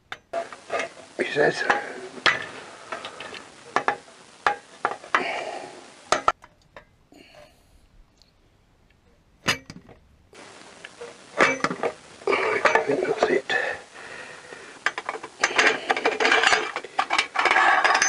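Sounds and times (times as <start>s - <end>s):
metal pipes clinking and knocking: 9.4s - 10.0s, 11.4s - 12.0s, 14.8s - 18.0s.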